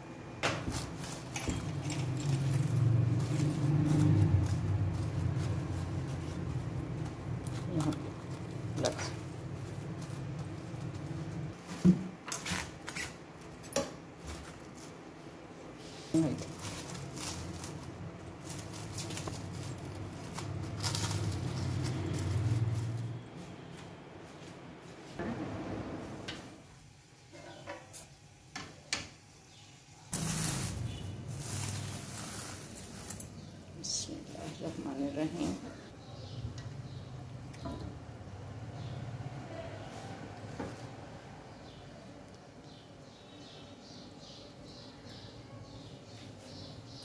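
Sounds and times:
cling film crinkling: 16.2s - 23.0s, 30.1s - 33.4s.

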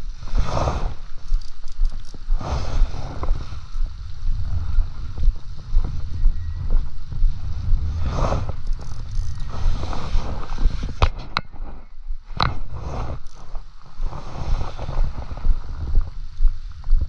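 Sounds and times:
wind buffeting microphone: 0.0s - 17.0s
spinning reel clicks: 1.2s - 2.3s, 8.6s - 9.5s.

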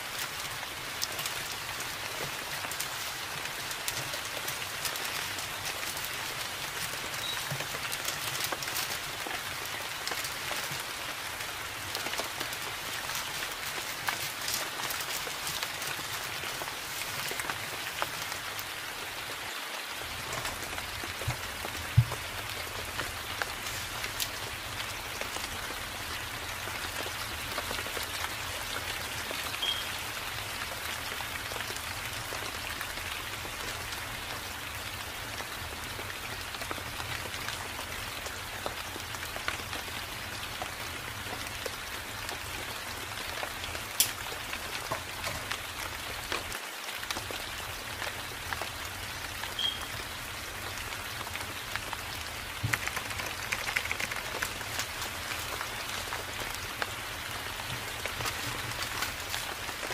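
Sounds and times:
rain on leaves: 0.0s - 59.9s.

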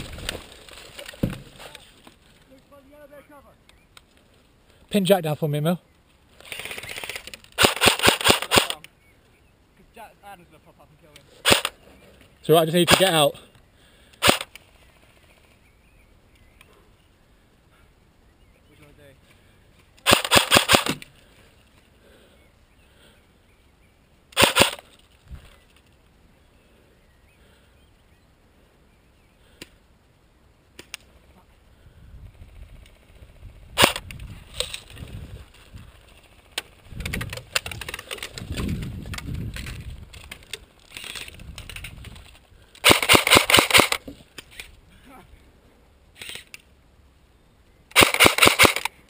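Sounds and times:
rustling movement: 0.0s - 4.9s, 32.4s - 44.9s
airsoft gun bursts: 6.4s - 8.8s, 11.4s - 11.8s, 12.7s - 13.3s, 14.2s - 14.6s, 20.0s - 21.0s, 24.4s - 24.9s, 33.8s - 34.0s, 42.8s - 44.0s, 47.9s - 49.0s.

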